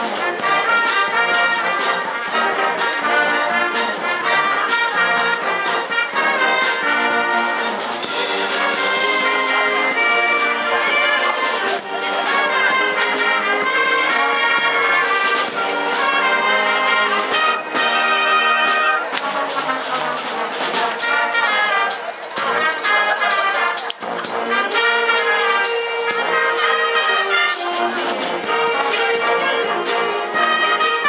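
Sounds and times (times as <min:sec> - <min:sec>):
drum and cymbal beat: 0:00.0 - 0:31.0
trumpets and trombones: 0:00.0 - 0:31.0.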